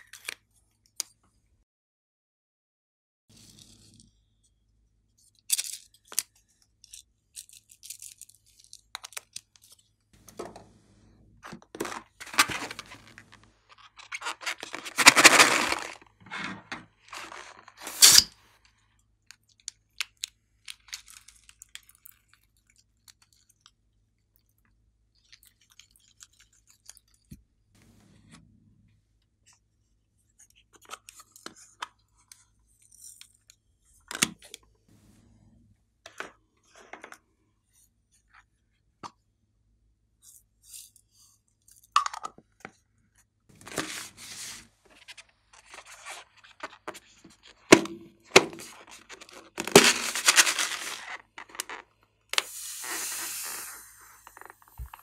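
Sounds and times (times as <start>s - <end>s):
plastic toys crinkling and clicking: 5.2s - 10.6s, 11.4s - 27.4s, 43.5s - 55.0s
plastic crackle: 11.6s - 18.3s, 47.7s - 52.0s.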